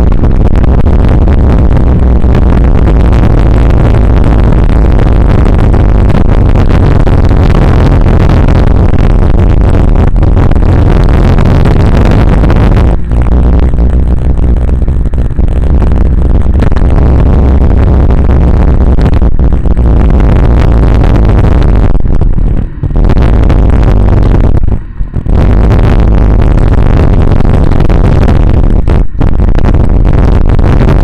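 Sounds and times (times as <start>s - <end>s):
low steady drone: 0.0s - 31.0s
wind buffeting microphone: 0.0s - 31.0s
road rush: 9.1s - 26.8s.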